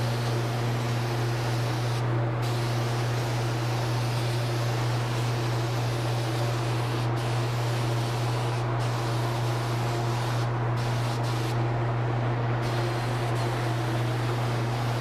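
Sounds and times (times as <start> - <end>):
spray gun hissing: 0.0 - 11.6, 12.6 - 15.0.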